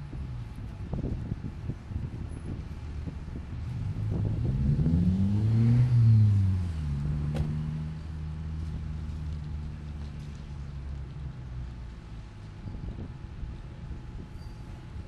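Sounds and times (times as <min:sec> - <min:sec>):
large engine revving: 0:03.6 - 0:08.4.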